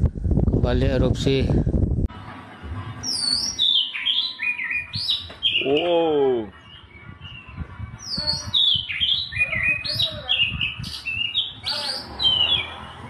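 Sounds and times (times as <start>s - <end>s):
birds chirping: 3.0s - 13.0s.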